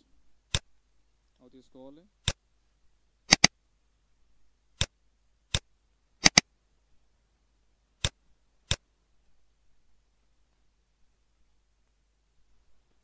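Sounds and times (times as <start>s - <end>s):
computer mouse clicking: 3.3s - 3.5s, 5.5s - 6.4s.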